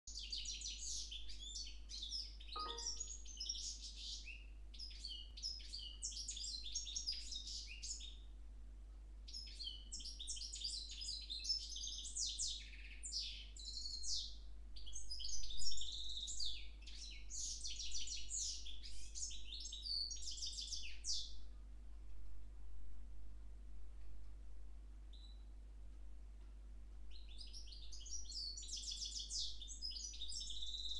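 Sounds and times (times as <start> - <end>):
bird singing high trills: 2.6 - 4.3.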